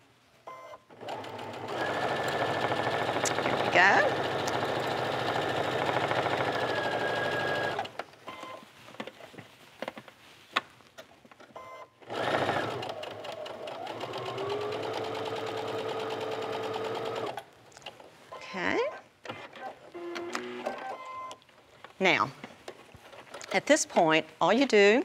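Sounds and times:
electric sewing machine stitching: 0:01.0 - 0:07.9, 0:12.0 - 0:17.4.

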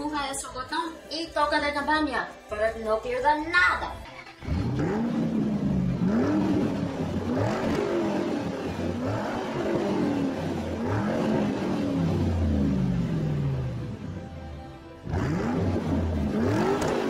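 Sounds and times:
car engine revving: 0:03.9 - 0:17.0.

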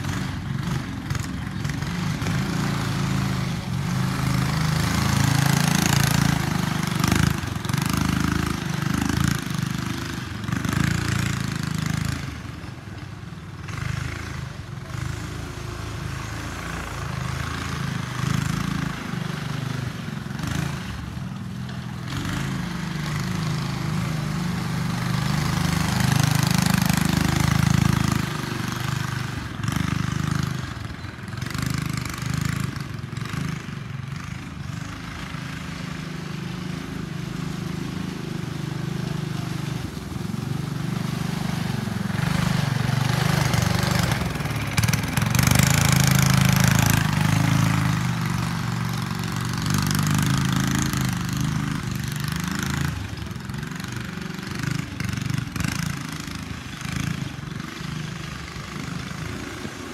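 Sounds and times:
go-kart engine running: 0:00.0 - 0:59.9.

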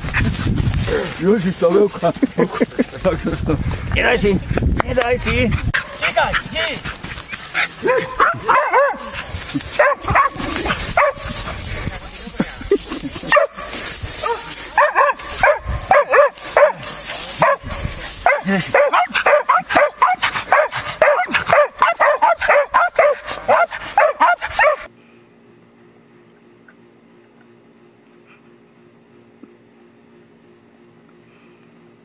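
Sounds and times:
faint steady hum: 0:00.0 - 0:32.0
dog barking and yelping: 0:07.4 - 0:11.3, 0:13.3 - 0:24.9.

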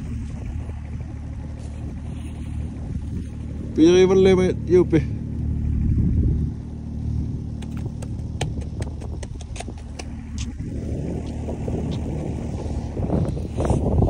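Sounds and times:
snowmobile engine idling: 0:00.0 - 0:14.0
sharp clicks: 0:07.6 - 0:10.6.

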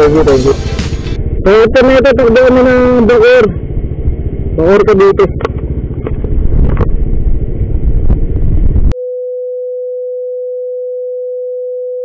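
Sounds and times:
loud low outdoor rumble: 0:00.0 - 0:09.0
steady electronic tone: 0:00.0 - 0:09.0.

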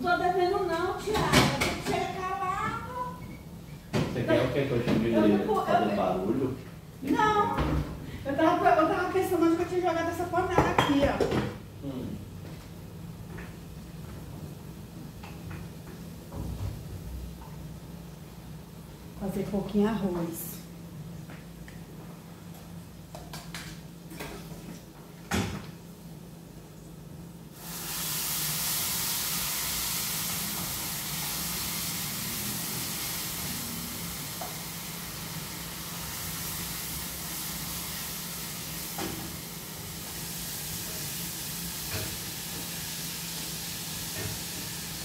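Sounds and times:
food sizzling in hot oil: 0:27.5 - 0:45.0.

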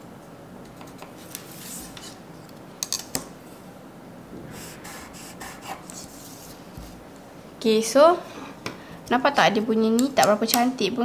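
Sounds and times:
pencil and ruler scratching paper: 0:04.6 - 0:06.6.

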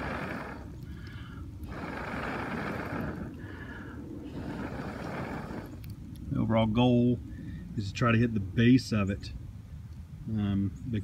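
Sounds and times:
person blowing on charcoal: 0:00.0 - 0:06.0.

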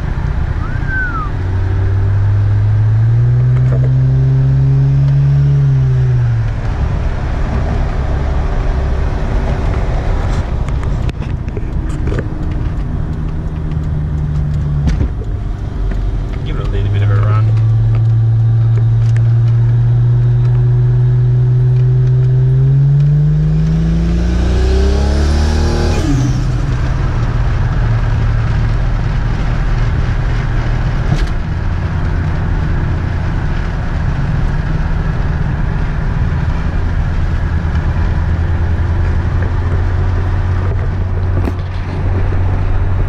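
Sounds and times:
car engine revving from cabin: 0:00.5 - 0:07.0, 0:16.4 - 0:27.2.

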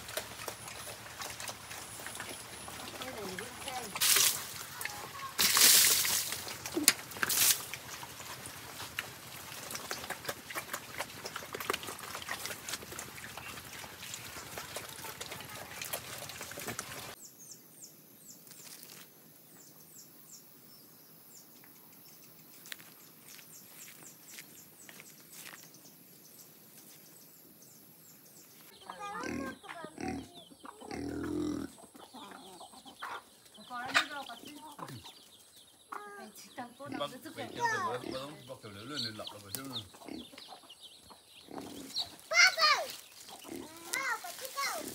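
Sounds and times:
pig smacking and slurping: 0:00.0 - 0:05.2, 0:06.3 - 0:17.2.

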